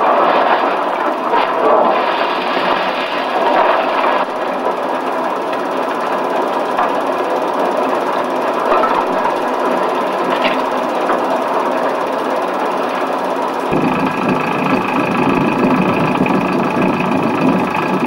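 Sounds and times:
ship engine noise: 0:00.0 - 0:18.0.

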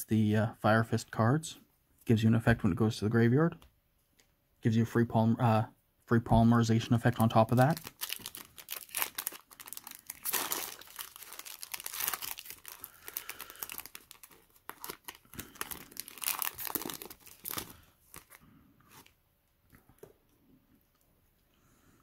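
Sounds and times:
foil wrapper crinkling and tearing: 0:07.1 - 0:18.4.

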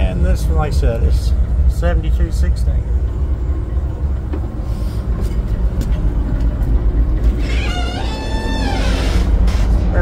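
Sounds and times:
locomotive engine low rumble: 0:00.0 - 0:10.0
high squealing tone: 0:07.4 - 0:09.6.

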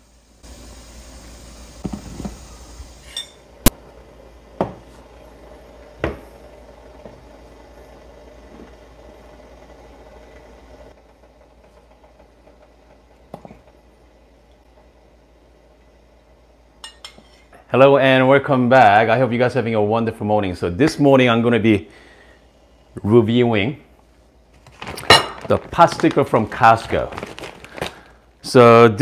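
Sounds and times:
steady hiss: 0:00.0 - 0:03.7
tableware clicks and clinks: 0:03.1 - 0:03.4.

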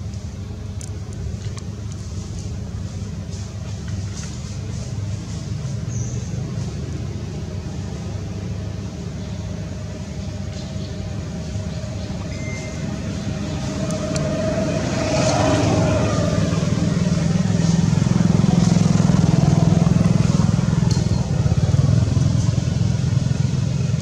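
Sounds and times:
vehicle engine running: 0:00.0 - 0:24.0.

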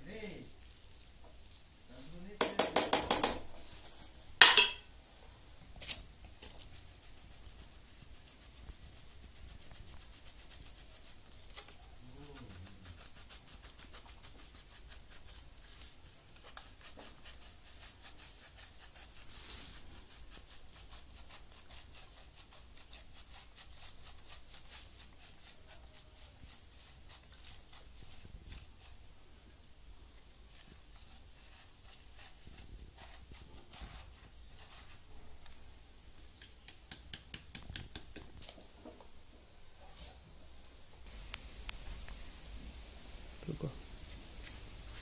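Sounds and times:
sharp knock: 0:02.4 - 0:03.5.

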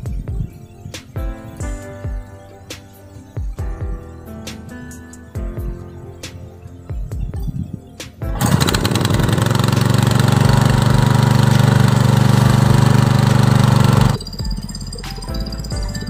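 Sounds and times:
small water pump engine running: 0:08.4 - 0:14.9.

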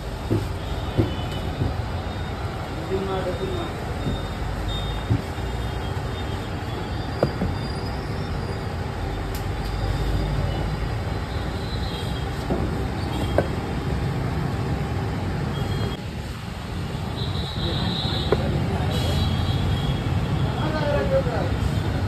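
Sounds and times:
street traffic rumble: 0:00.0 - 0:22.0
sharp knocks: 0:00.2 - 0:01.9, 0:07.2 - 0:07.6.

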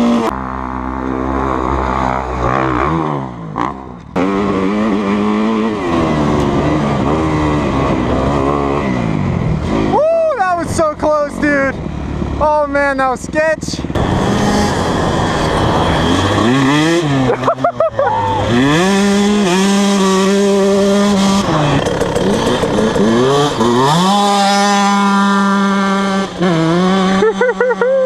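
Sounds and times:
dirt bike engine accelerating: 0:00.0 - 0:28.0.

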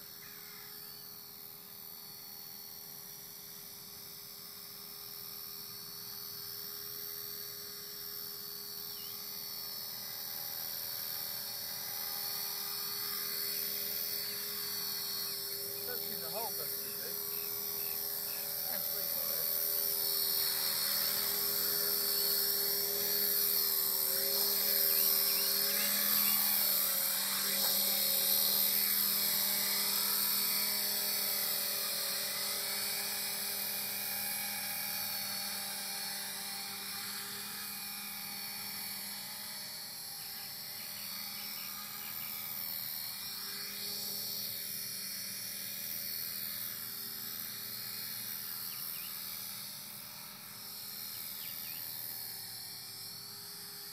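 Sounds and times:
rc helicopter motor whine: 0:00.0 - 0:53.9.

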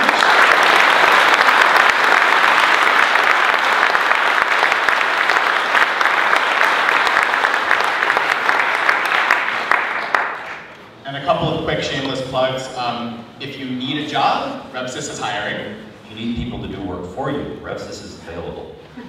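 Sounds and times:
audience applauding: 0:00.0 - 0:10.8.

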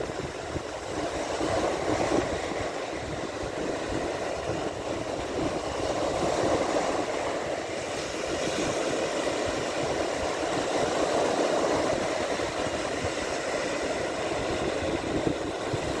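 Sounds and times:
small waves breaking on shore: 0:00.0 - 0:16.0.

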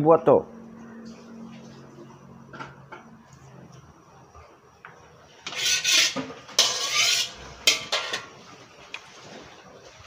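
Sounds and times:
metal spatula scraping wok: 0:05.4 - 0:08.4.

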